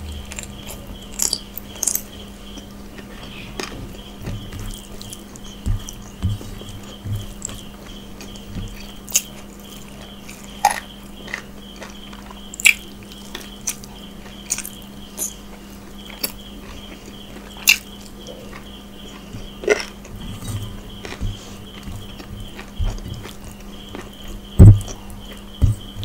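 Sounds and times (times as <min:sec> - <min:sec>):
steady low hum: 0:00.0 - 0:26.0
chewing with wet mouth smacks: 0:00.3 - 0:15.4, 0:16.0 - 0:26.0.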